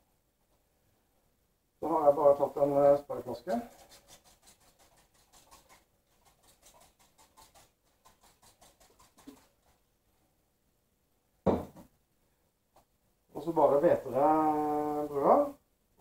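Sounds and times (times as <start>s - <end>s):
spray bottle squirting: 3.7s - 9.7s
loud short thump: 11.4s - 11.8s.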